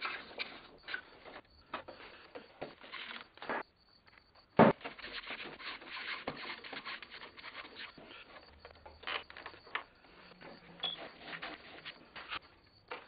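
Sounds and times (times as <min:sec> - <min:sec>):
sharp knock: 0:04.6 - 0:04.9
hand plane shaving wood: 0:04.8 - 0:08.3, 0:11.0 - 0:12.4.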